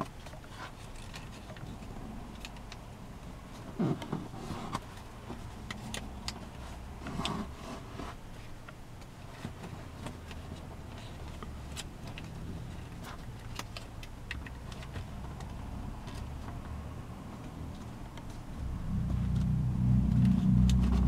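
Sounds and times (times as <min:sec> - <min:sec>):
low hum: 0:16.8 - 0:21.0.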